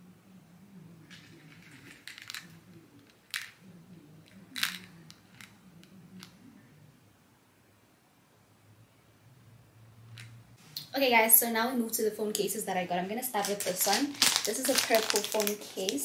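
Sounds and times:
light plastic rustling: 0:01.1 - 0:03.6, 0:04.2 - 0:05.9, 0:12.3 - 0:16.0.

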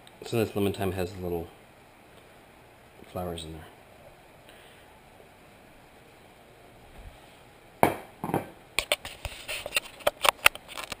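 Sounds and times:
knock on camera housing: 0:07.8 - 0:08.6.

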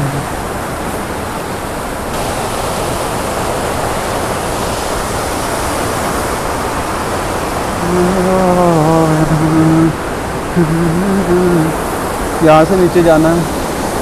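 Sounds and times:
man's voice drawn-out sounds: 0:00.0 - 0:00.3, 0:07.8 - 0:11.8, 0:12.4 - 0:13.5
stream rushing over boulders: 0:00.0 - 0:14.0.

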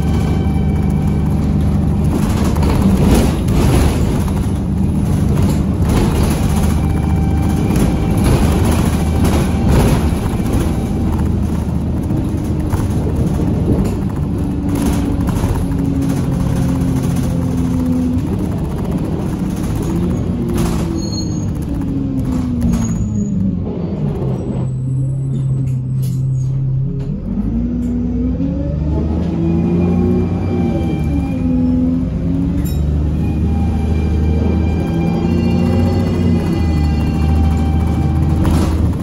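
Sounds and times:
knocks and rattles: 0:00.0 - 0:24.4, 0:35.4 - 0:39.0
bus engine with turbo whine: 0:00.0 - 0:39.0
road noise: 0:00.0 - 0:39.0.

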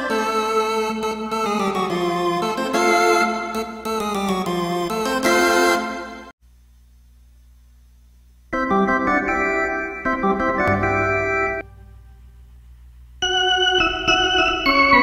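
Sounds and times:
organ playing sustained chords: 0:00.0 - 0:06.3, 0:08.6 - 0:12.5, 0:13.2 - 0:15.0
low hum: 0:10.5 - 0:13.3.

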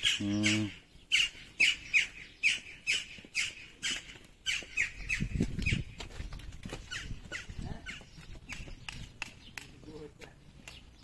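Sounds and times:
bird squawking: 0:00.0 - 0:05.9.

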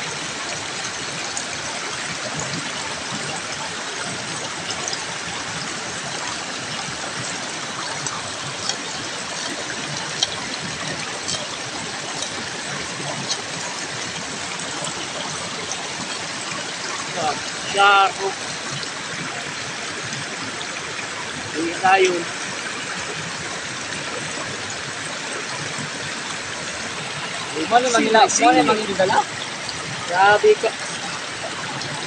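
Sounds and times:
creek water running: 0:00.0 - 0:32.0.

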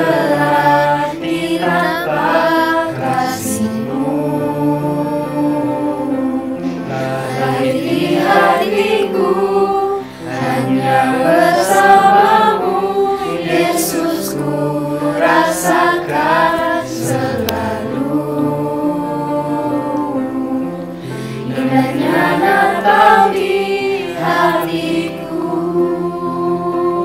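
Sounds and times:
mixed choir singing in harmony: 0:00.0 - 0:27.0.

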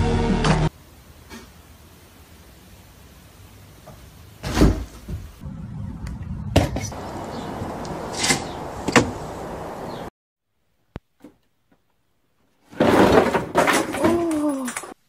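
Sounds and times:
steady background hiss: 0:00.7 - 0:05.4.

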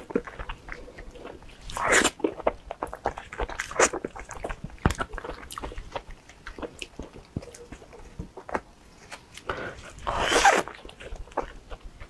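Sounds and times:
mouth chewing wet smacks: 0:00.0 - 0:08.6.

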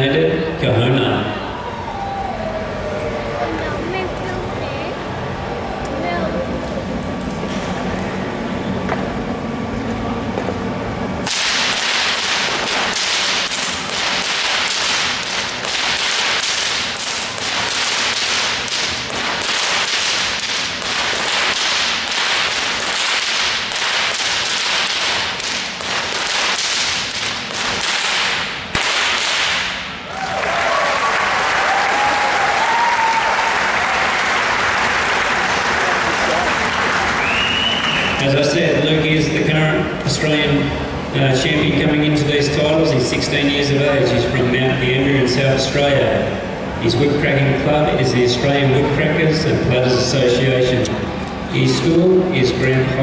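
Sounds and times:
whips cracking: 0:11.2 - 0:30.0
applause: 0:30.1 - 0:38.2.

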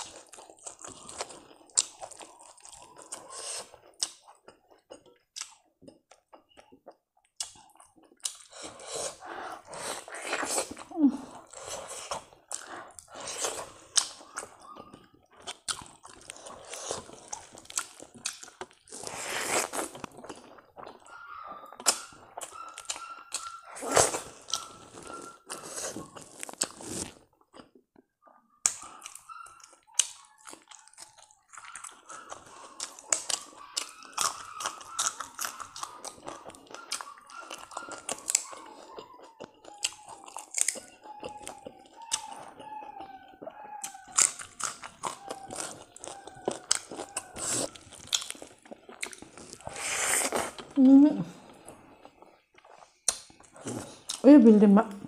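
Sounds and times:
chewing and lip smacks: 0:00.0 - 0:54.3
faint puppy whimper: 0:10.5 - 0:12.0, 0:32.0 - 0:47.8
crunchy bites: 0:30.0 - 0:42.8, 0:43.8 - 0:54.2.

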